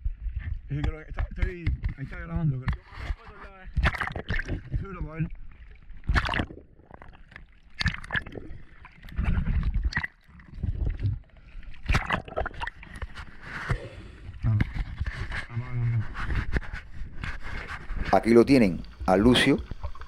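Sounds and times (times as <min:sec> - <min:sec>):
underwater bubbles: 0:00.0 - 0:15.5, 0:16.2 - 0:20.0
low underwater rumbling: 0:00.0 - 0:20.0
diver breathing out: 0:13.4 - 0:14.4
water rushing: 0:18.1 - 0:20.0.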